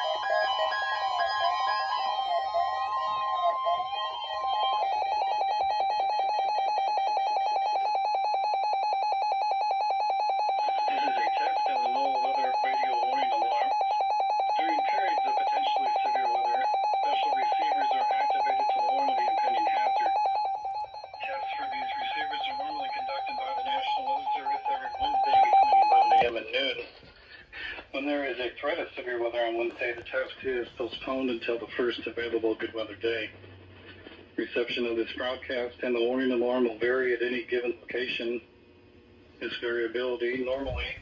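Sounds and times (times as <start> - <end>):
rapidly pulsing alarm beep: 0.0 - 26.8
synthesized announcer voice: 10.7 - 13.9, 14.5 - 20.3, 21.2 - 26.8.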